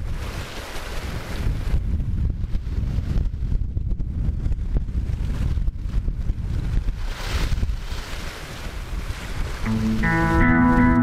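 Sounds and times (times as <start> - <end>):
wind buffeting microphone: 0.0 - 11.0
sea washing: 5.0 - 11.0.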